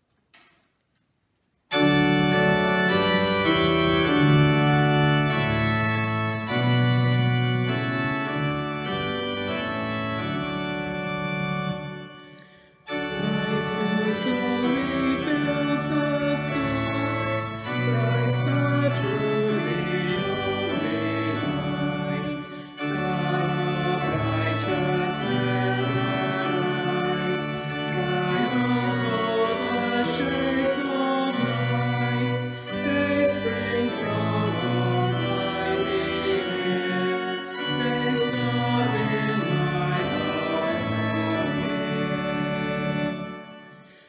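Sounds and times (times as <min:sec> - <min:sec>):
organ playing chords: 0:01.7 - 0:44.0
voices singing a hymn: 0:12.9 - 0:43.6.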